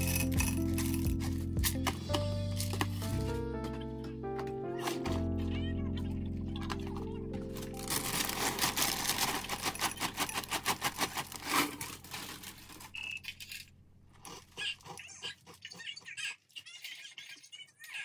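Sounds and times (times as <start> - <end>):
plastic bag crinkling: 0.0 - 3.1, 6.5 - 15.0.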